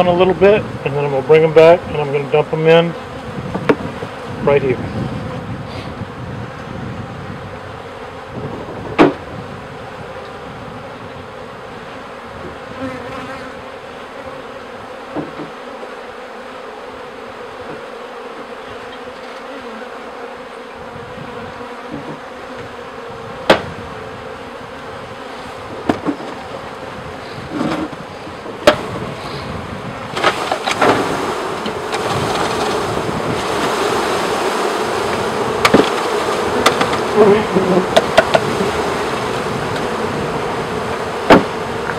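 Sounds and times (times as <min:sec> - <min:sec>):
honeybees buzzing: 0:00.0 - 0:41.9
sharp knocks on wooden cage: 0:15.1 - 0:15.6, 0:23.5 - 0:23.7, 0:35.6 - 0:37.1, 0:37.9 - 0:38.5, 0:41.3 - 0:41.5.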